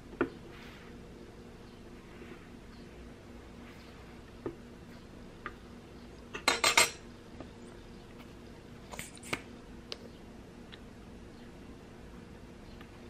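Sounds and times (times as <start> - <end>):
tongs clattering on countertop: 6.3 - 7.0.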